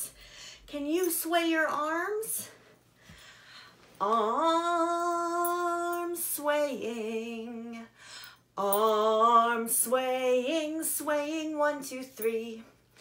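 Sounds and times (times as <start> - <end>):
woman singing unaccompanied: 0.7 - 2.5, 4.0 - 8.0, 8.6 - 12.8.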